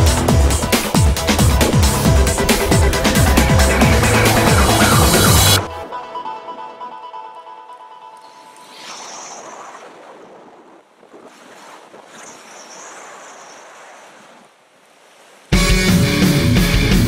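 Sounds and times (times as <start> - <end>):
rushing wind-like noise: 0.0 - 5.8
loud rock music: 0.0 - 6.2, 15.6 - 17.0
music: 0.0 - 8.7, 15.6 - 17.0.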